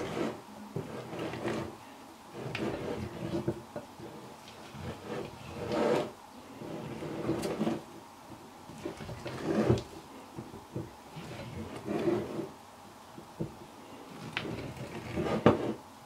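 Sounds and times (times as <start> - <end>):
spatula scraping dough in glass bowl: 0.0 - 1.7, 2.3 - 7.8, 8.7 - 9.9, 11.1 - 12.5, 14.1 - 15.8.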